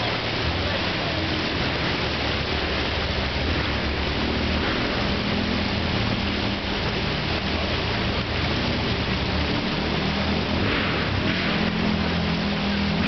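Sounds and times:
car engine at low revs: 0.0 - 13.0
steady rushing hiss: 0.0 - 13.0.

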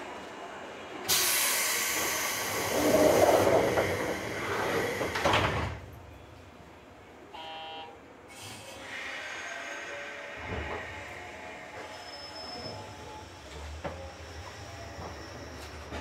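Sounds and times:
pneumatic door air hiss: 1.1 - 3.2, 8.3 - 11.1
train doors shutting thud: 1.1 - 6.0
brief tone: 7.4 - 8.0.

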